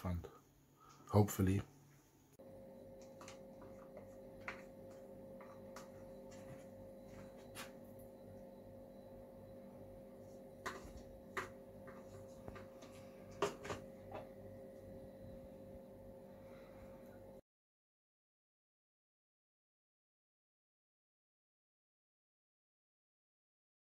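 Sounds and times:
machine humming: 2.4s - 17.4s.

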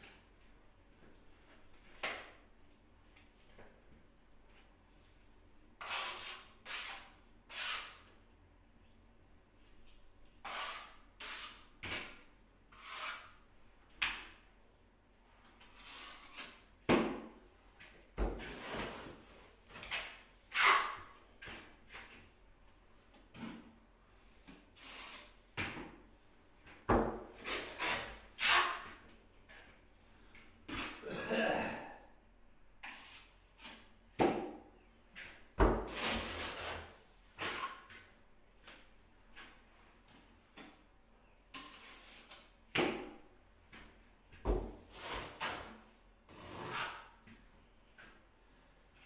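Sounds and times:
trowel scraping tile adhesive: 5.8s - 8.1s, 10.4s - 13.4s, 35.9s - 38.0s, 44.9s - 45.7s.

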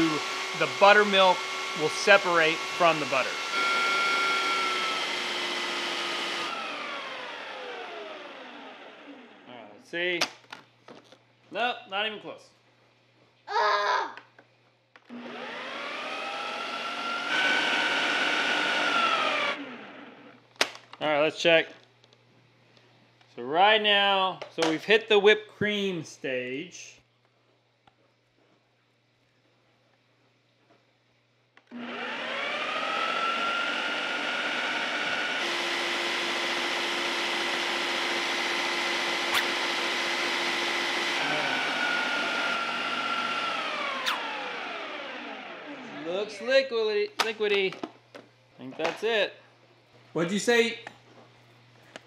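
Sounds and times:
food processor motor whining: 0.0s - 9.4s, 15.0s - 20.4s, 31.6s - 46.4s.

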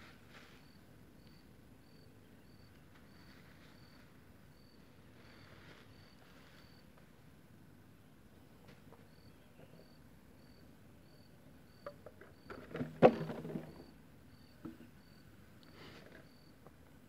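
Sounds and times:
insect chirping: 0.5s - 6.8s, 9.1s - 16.6s.

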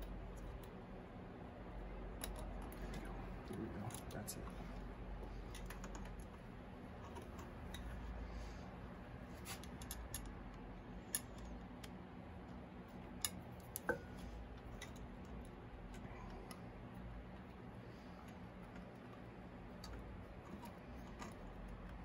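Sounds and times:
low steady hum: 0.0s - 22.0s
small clicks and taps: 5.2s - 6.4s.

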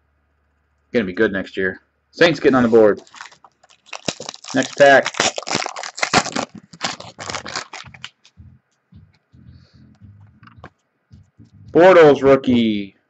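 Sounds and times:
cards rustling: 2.5s - 8.4s
wrapper tearing and crinkling: 2.9s - 8.3s.

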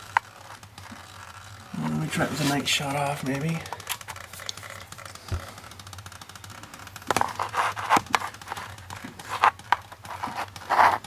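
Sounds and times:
handling noise rustling and scraping: 0.0s - 5.6s, 6.8s - 11.0s.

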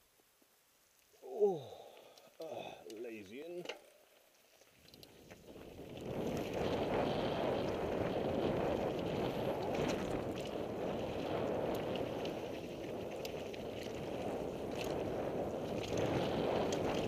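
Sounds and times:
bike tyres and frame clicking: 0.9s - 17.0s
wind rushing over microphone: 5.4s - 17.0s.

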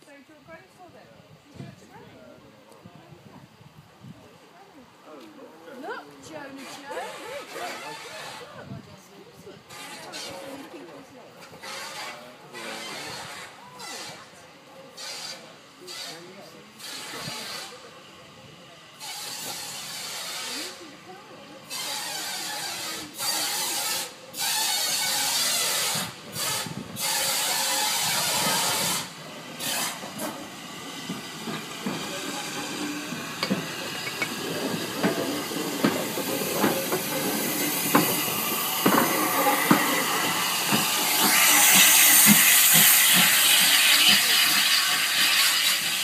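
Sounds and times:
steam hiss: 9.5s - 46.0s
steam locomotive wheels knocking: 21.7s - 46.0s.

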